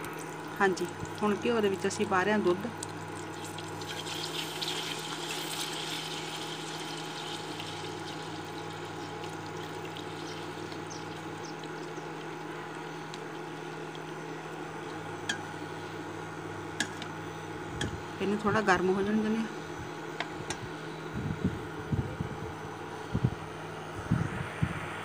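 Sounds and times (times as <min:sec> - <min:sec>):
milk pouring into hot pan: 0:02.8 - 0:14.2.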